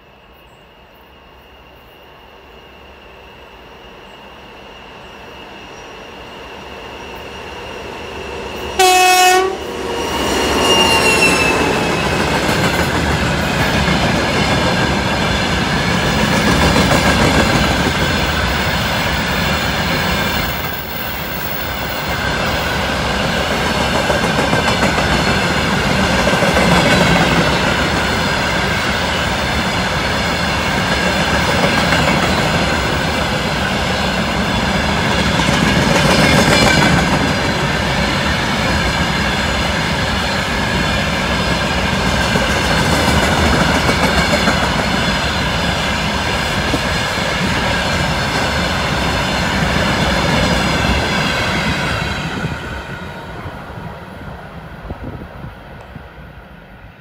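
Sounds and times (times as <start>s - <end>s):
train wheels on rails: 1.3s - 57.0s
locomotive horn blast: 8.6s - 12.0s.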